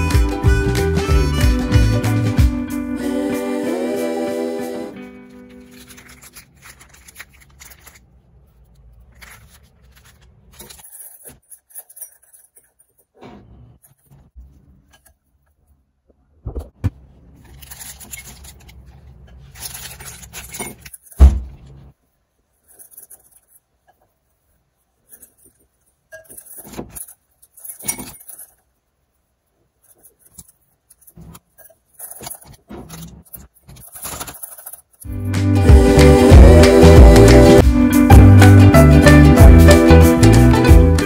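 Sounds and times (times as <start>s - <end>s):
plastic bag crinkling: 5.4s - 13.0s, 17.3s - 21.2s, 29.8s - 35.1s.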